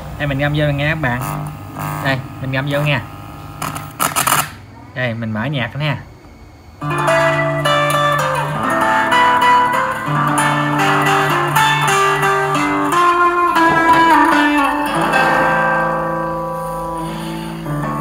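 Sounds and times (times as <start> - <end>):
guitar music from small speakers: 6.8 - 18.0.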